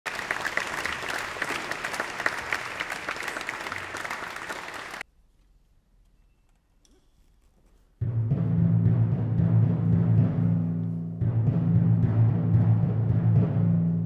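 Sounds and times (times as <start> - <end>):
audience applauding: 0.0 - 5.0.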